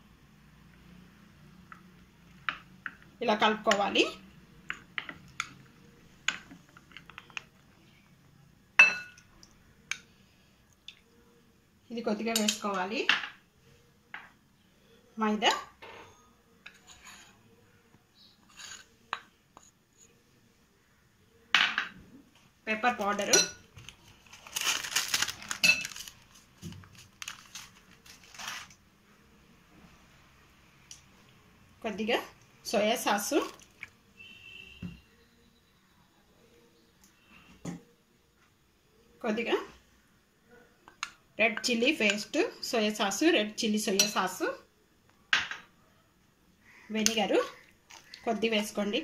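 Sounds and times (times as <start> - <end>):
spoon scraping a glass bowl: 16.7 - 17.4, 18.3 - 19.0.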